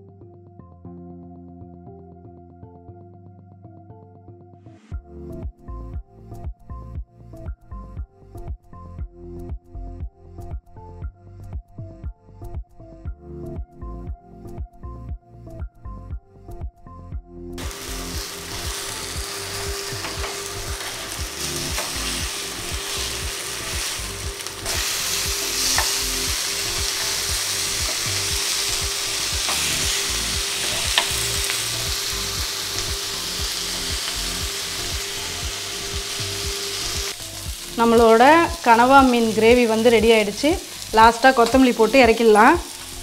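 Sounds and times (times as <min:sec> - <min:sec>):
fish sizzling in oil: 0:17.6 - 0:43.0.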